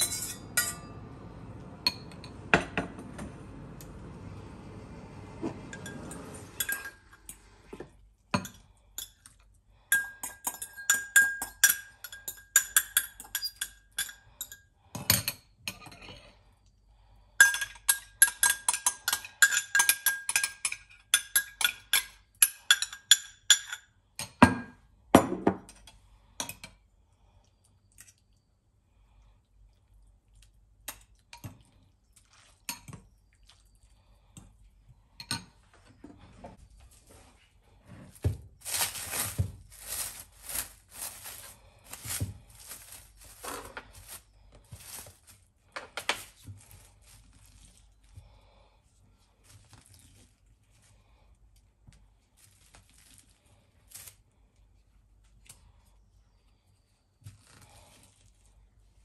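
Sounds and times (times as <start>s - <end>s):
cutlery clinking in ceramic bowl: 0.0s - 1.0s, 9.9s - 16.1s, 17.4s - 24.4s
fork clinking against glass: 0.0s - 1.0s, 10.0s - 14.6s.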